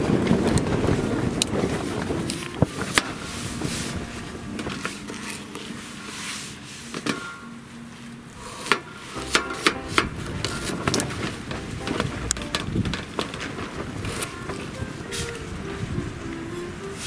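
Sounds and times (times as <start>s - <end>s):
wind buffeting microphone: 0.0s - 5.2s, 9.8s - 17.0s.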